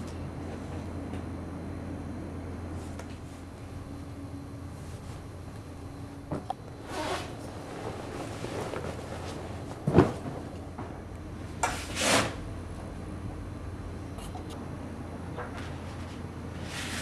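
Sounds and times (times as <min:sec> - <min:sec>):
low room hum: 0:00.0 - 0:17.0
clothing rustling: 0:06.3 - 0:10.6.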